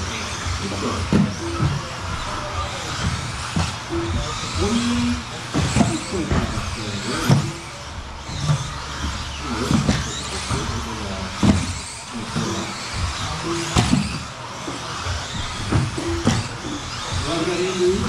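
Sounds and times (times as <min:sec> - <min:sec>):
electric motors whining: 0:00.0 - 0:18.0
tyres running on carpet: 0:00.0 - 0:18.0
plastic clacks of landing cars: 0:03.0 - 0:03.9, 0:08.3 - 0:17.0.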